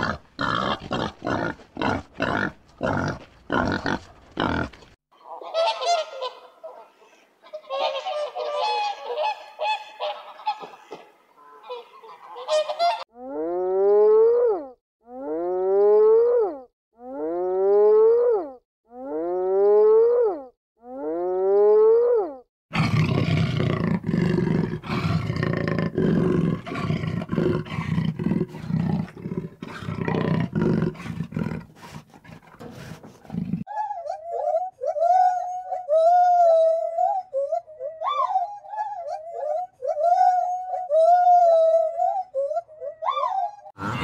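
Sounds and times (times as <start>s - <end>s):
rough growling call: 22.8s - 33.7s.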